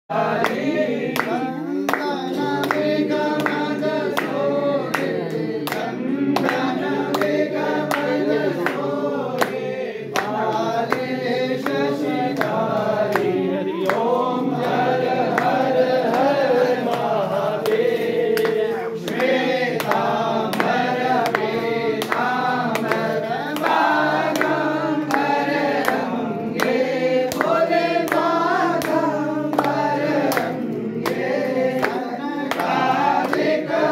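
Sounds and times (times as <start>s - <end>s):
group singing a hymn: 0.1s - 33.9s.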